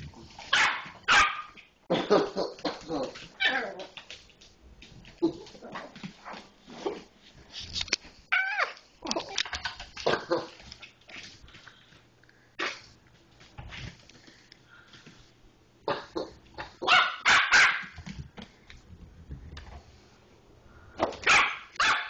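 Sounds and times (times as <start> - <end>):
puppy barking and yipping: 0.5 - 1.6, 16.8 - 18.0, 21.3 - 22.0.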